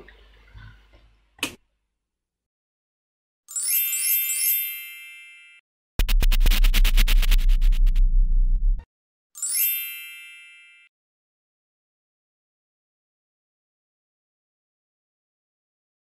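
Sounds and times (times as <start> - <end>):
fast glitchy stutter: 6.0 - 8.7
deep steady hum: 6.0 - 8.8.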